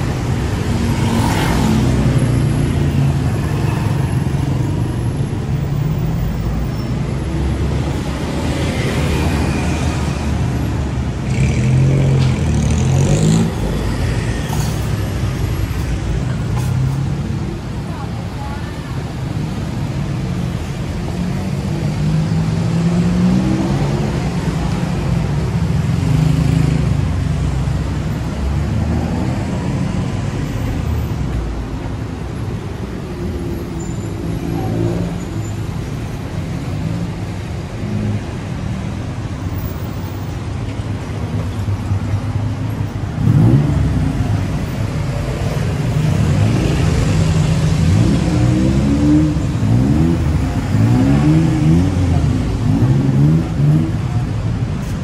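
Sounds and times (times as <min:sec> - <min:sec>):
engines accelerating: 0:20.4 - 0:27.8, 0:43.0 - 0:54.9.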